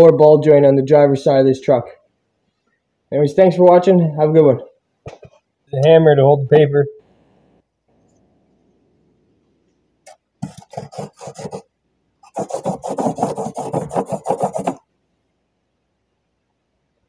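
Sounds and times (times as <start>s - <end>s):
pencil scratching on paper: 10.4s - 14.8s.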